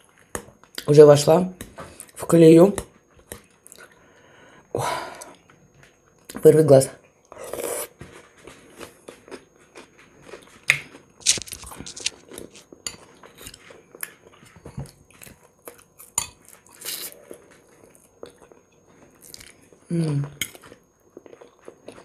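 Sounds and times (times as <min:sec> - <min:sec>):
chewing and mouth smacks: 0:08.1 - 0:19.6.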